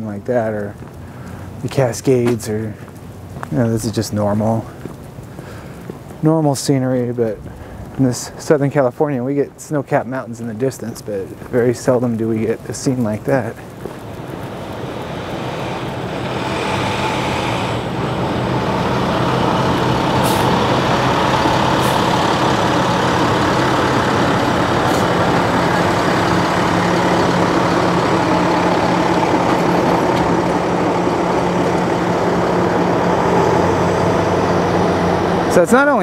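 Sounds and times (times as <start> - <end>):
traffic rumble: 0.0 - 36.0
truck engines running: 0.0 - 36.0
brief hisses: 20.2 - 20.5.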